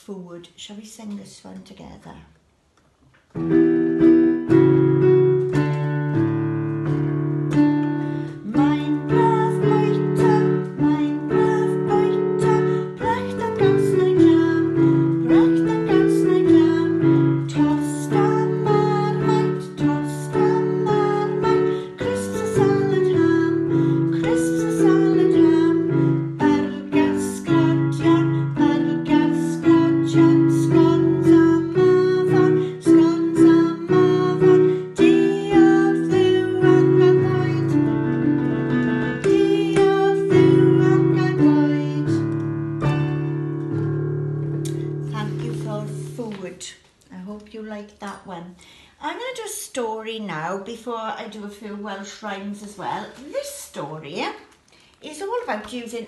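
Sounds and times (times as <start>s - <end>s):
keyboard playing chords: 3.4s - 46.2s
woman singing: 8.2s - 38.2s, 39.0s - 42.4s, 45.0s - 46.6s.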